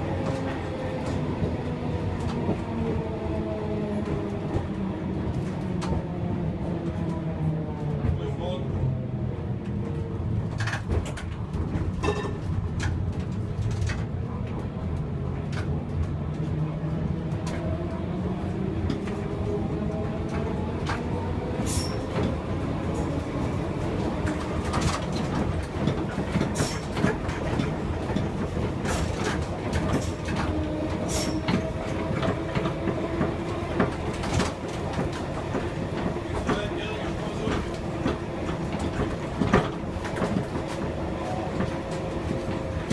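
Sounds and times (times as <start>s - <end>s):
wheels clicking over rail joints: 18.8s - 42.9s.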